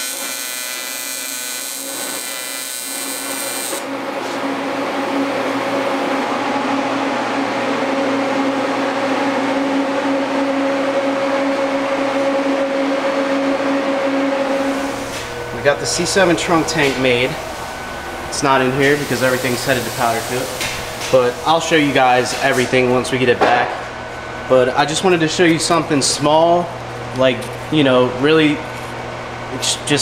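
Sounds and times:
welder buzzing: 0.0 - 23.1
steady whirring hum: 2.9 - 30.0.

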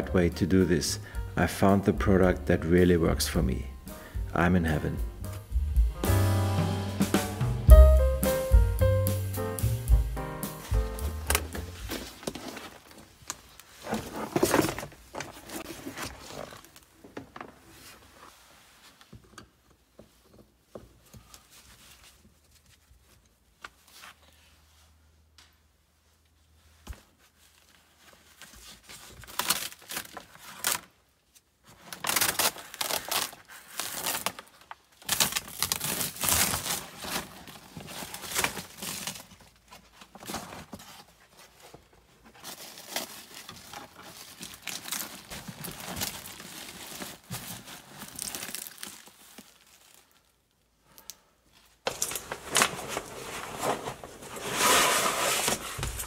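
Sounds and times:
material crinkling and tearing: 11.3 - 17.0, 26.9 - 56.0.

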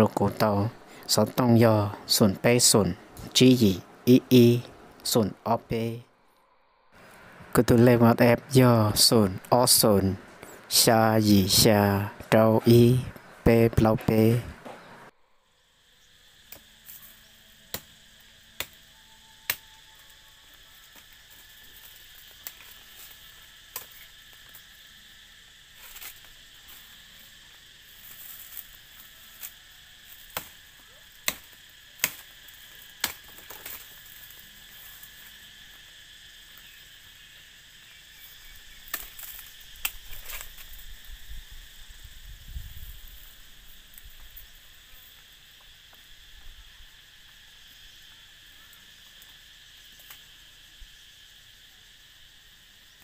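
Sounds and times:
insects droning: 0.0 - 53.0
knife chopping woody stems: 29.3 - 30.6, 31.2 - 33.9.

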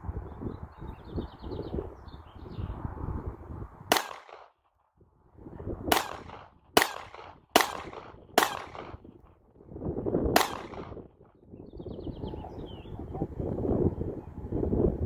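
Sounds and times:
pistol shots: 3.9 - 4.6, 5.9 - 9.1, 10.4 - 11.1.

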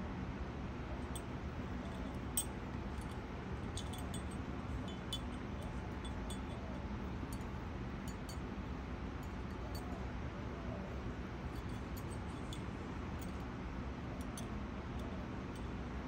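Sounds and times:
steady low hum: 0.0 - 16.0
light metallic tinkles and clicks: 1.0 - 10.1, 11.4 - 13.5, 14.2 - 15.8.

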